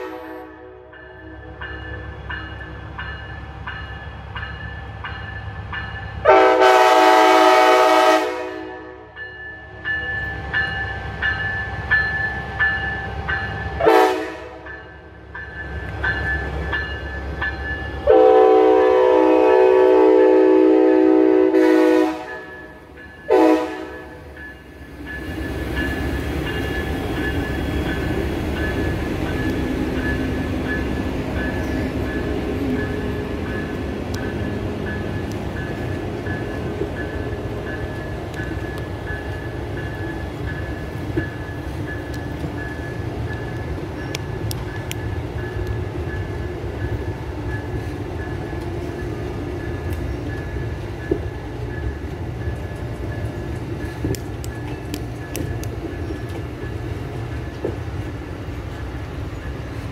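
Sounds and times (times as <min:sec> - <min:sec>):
locomotive air horn blasts: 0:00.0 - 0:01.4, 0:06.2 - 0:09.1, 0:13.8 - 0:14.6, 0:18.0 - 0:22.5, 0:23.3 - 0:24.2
train wheels rumbling on rails: 0:00.0 - 0:59.9.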